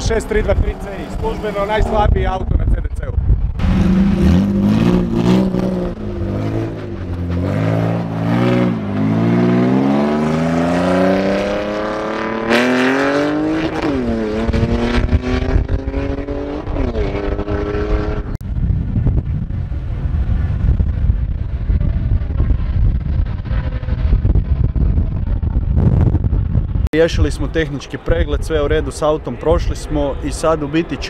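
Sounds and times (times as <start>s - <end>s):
wind buffeting microphone: 0.0s - 31.0s
car engine revving: 3.5s - 18.4s.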